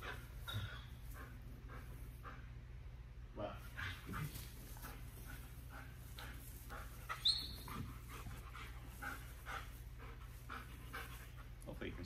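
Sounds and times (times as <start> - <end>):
dog panting: 0.0 - 2.8, 3.6 - 12.0
dog whining: 7.1 - 7.9.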